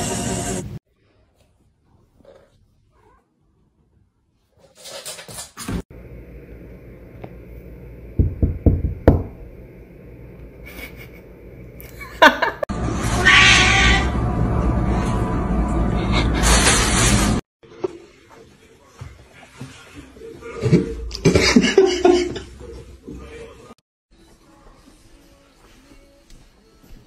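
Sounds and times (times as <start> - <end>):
cats meowing and yowling: 13.1 - 14.2.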